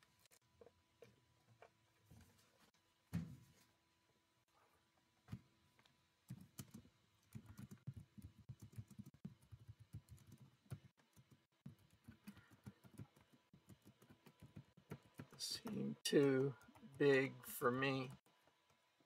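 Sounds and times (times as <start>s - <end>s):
typing on computer keyboard: 6.3s - 18.8s.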